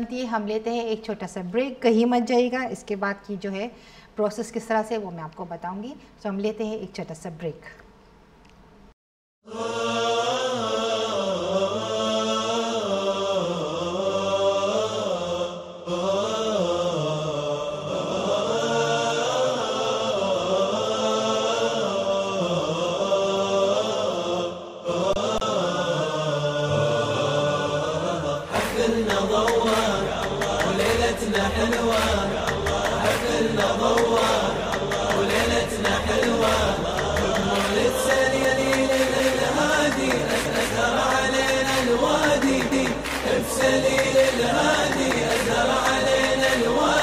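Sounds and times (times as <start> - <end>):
chanted vocal music: 9.4 - 47.0
person chanting a slow melody: 9.5 - 39.6.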